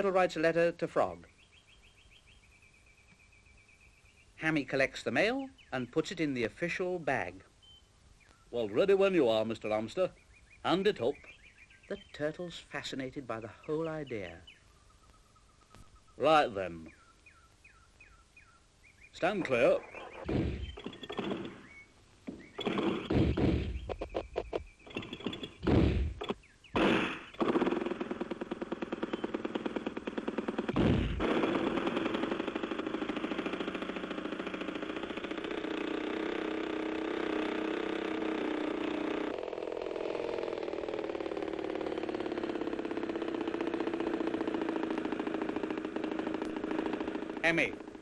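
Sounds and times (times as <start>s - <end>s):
sharp knock: 23.0s - 23.8s
model aeroplane engine running: 27.4s - 48.0s.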